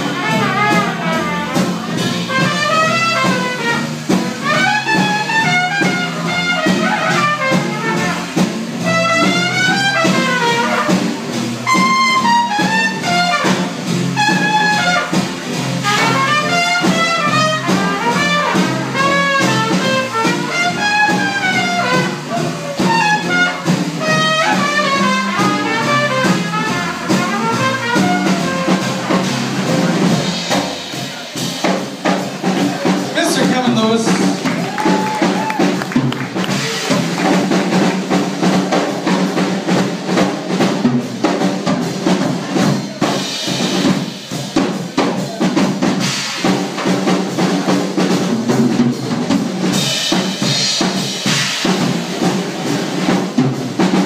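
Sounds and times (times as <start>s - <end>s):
trumpet melody: 0.0s - 30.5s
trad jazz band playing: 0.0s - 54.0s.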